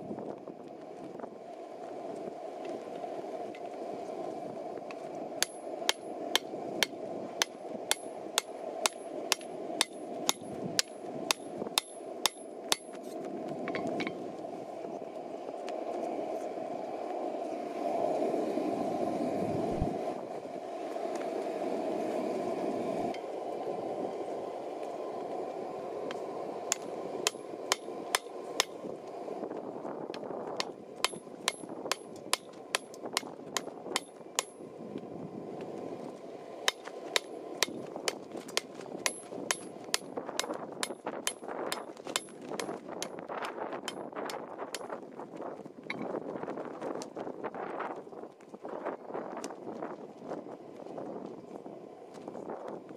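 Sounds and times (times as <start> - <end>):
steady rushing noise: 0.0 - 52.9
hammer clanging on hot metal: 7.4 - 13.0, 30.6 - 34.6.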